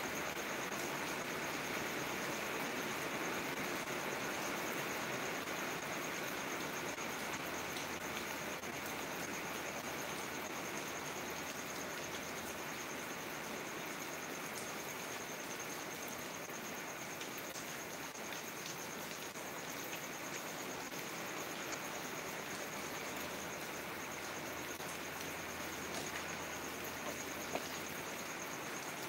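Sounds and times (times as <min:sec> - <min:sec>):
crickets trilling: 0:00.0 - 0:29.0
heavy rain falling: 0:17.0 - 0:29.0.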